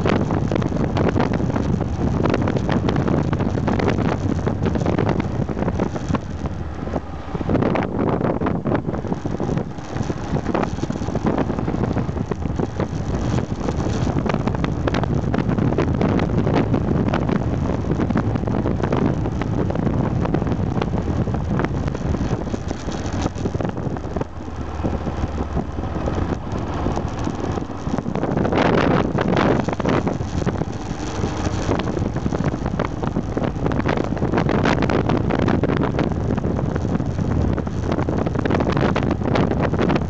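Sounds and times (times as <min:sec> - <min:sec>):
motorcycle engine running: 0:00.0 - 0:40.0
wind buffeting microphone: 0:00.0 - 0:40.0.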